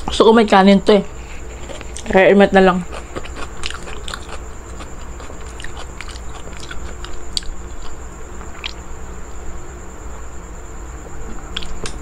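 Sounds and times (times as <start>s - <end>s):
person chewing and biting: 2.9s - 8.8s, 11.5s - 12.0s.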